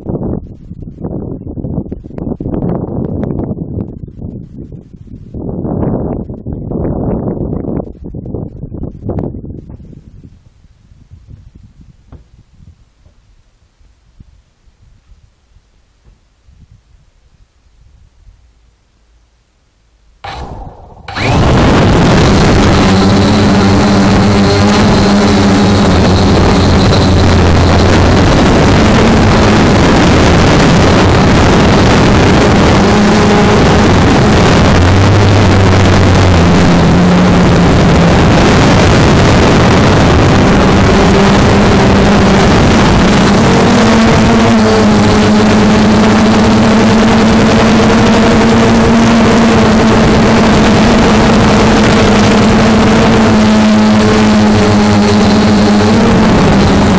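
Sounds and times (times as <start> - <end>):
drone motors and propellers humming: 18.5 - 56.9.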